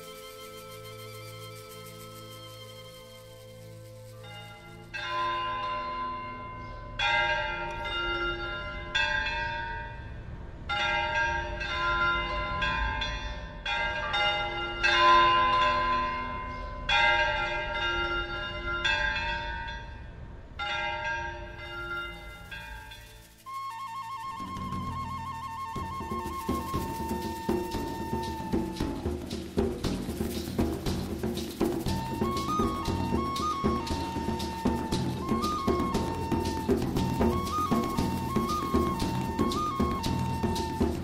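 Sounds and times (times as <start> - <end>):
bells pealing: 0.0 - 10.1.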